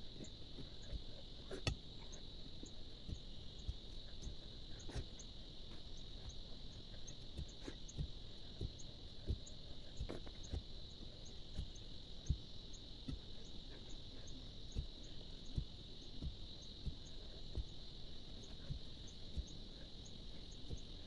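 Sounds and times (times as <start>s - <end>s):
steady high hum: 0.0s - 21.0s.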